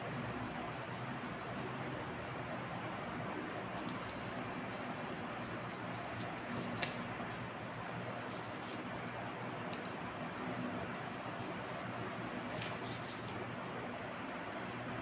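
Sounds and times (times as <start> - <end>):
faint low hum: 0.0 - 15.0
brush scratching on paper: 0.2 - 2.5, 3.4 - 8.9, 10.5 - 13.4.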